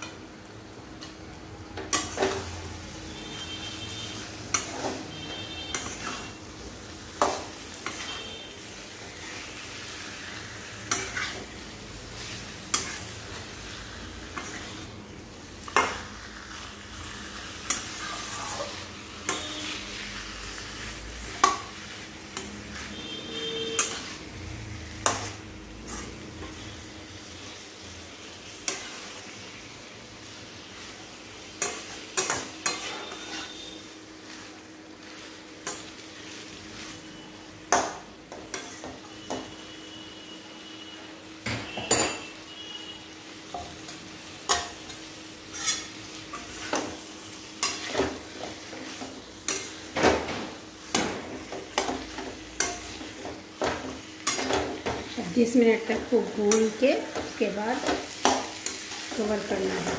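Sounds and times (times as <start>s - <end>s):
food sizzling in pan: 0.0s - 59.9s
spoon stirring and scraping: 17.6s - 20.1s, 31.6s - 33.8s, 43.5s - 46.9s.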